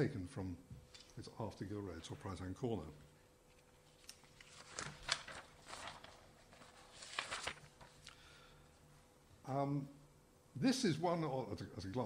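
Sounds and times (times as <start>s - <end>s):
faint steady hum: 0.0s - 12.0s
faint clicks and rustles: 3.4s - 8.2s.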